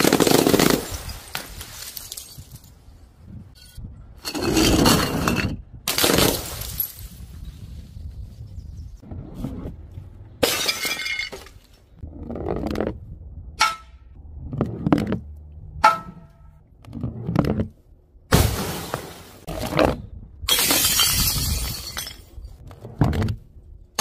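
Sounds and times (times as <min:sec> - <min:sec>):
glass breaking: 0:10.4 - 0:11.5, 0:20.5 - 0:22.3
objects smashing on hard tiles: 0:10.4 - 0:11.6, 0:20.5 - 0:22.4.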